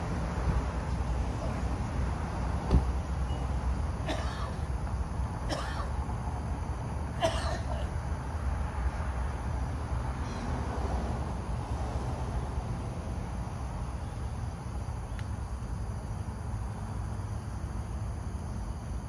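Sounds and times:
person coughing: 4.1 - 4.6, 5.5 - 5.9, 7.2 - 7.9.

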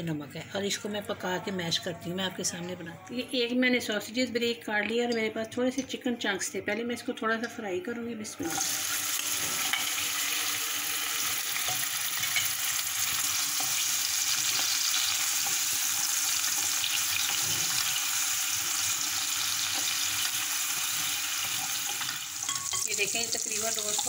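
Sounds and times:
meat sizzling in oil: 8.5 - 24.0.

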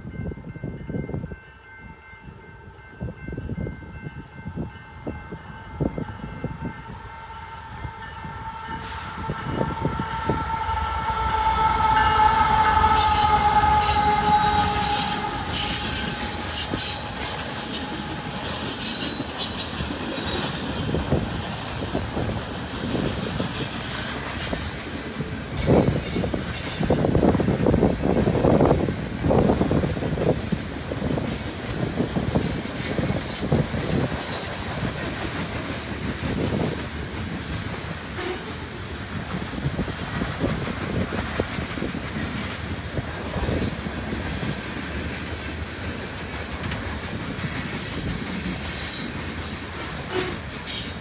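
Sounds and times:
locomotive air horn: 5.6 - 19.7, 38.2 - 38.6, 50.0 - 51.0
train wheels clacking and squealing: 8.6 - 51.0.

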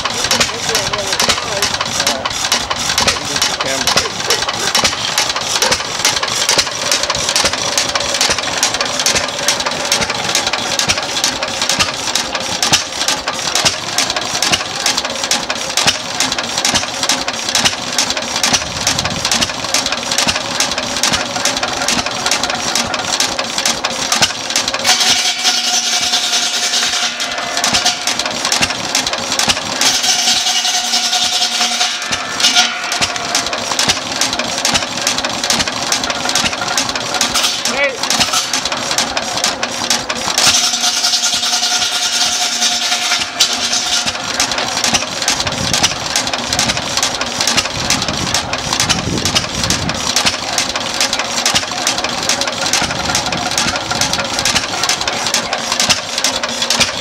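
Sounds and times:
stationary engine running: 0.0 - 57.0.

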